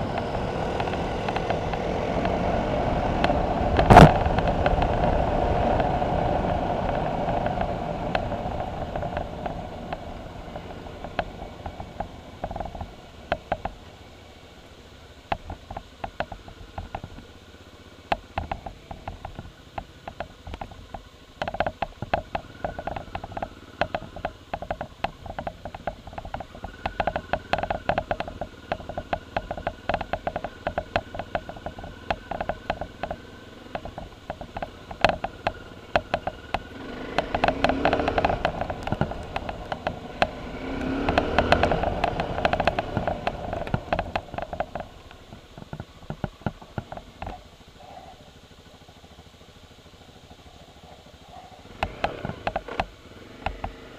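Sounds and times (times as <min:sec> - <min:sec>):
motorcycle engine running: 0:00.0 - 0:53.9
sharp clicks: 0:18.1 - 0:47.4.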